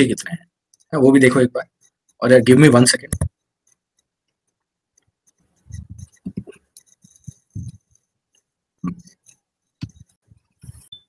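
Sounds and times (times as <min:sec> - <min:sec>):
phone being handled: 0:05.3 - 0:08.0.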